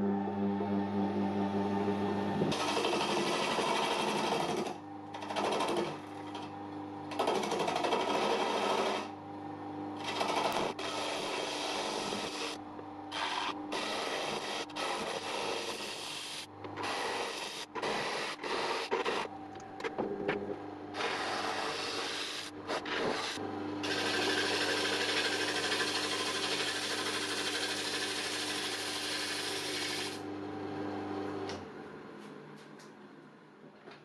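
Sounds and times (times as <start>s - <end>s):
lathe motor humming: 0.0s - 15.3s, 16.0s - 31.6s
gouge scraping wood: 7.2s - 9.1s, 10.0s - 16.1s, 21.0s - 30.2s.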